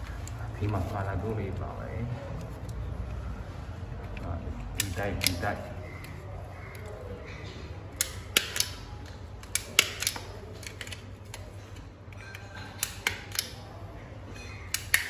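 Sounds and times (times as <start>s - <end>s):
punch-down tool clicks: 4.6s - 6.1s, 8.0s - 11.4s, 12.8s - 13.6s, 14.7s - 15.0s.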